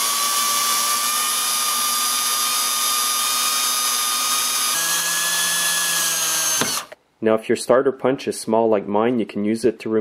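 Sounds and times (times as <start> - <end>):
electric drill whining: 0.0 - 7.0.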